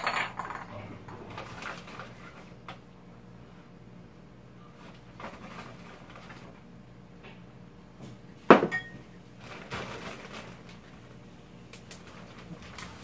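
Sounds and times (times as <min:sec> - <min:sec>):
dishes knocking and ringing: 0:08.5 - 0:09.0.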